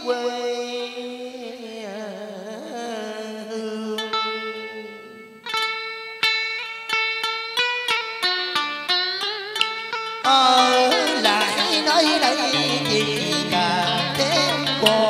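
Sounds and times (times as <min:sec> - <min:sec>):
plucked lute notes: 0:03.8 - 0:15.0.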